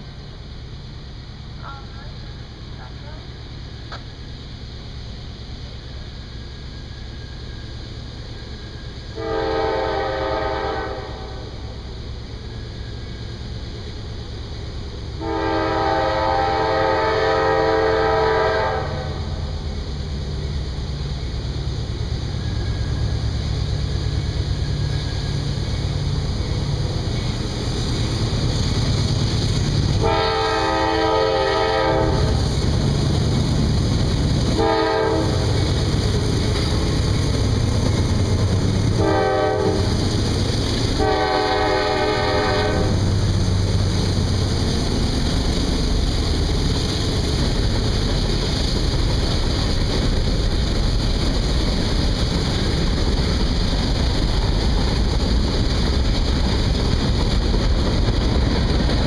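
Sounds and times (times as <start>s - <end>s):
train rumbling: 0.0s - 59.0s
locomotive air horn blasts: 9.2s - 11.5s, 15.2s - 19.3s, 30.0s - 32.4s, 34.6s - 35.6s, 39.0s - 40.0s, 41.0s - 43.0s.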